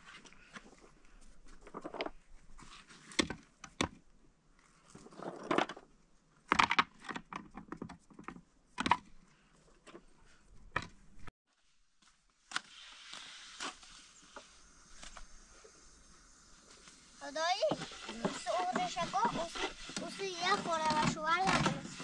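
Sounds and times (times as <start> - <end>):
faint steady hiss: 11.5 - 20.8.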